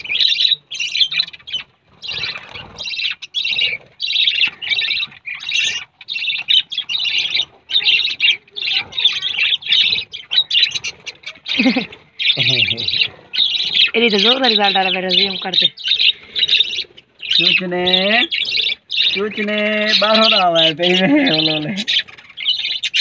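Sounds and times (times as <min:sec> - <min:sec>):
budgerigars chattering: 0:00.0 - 0:23.0.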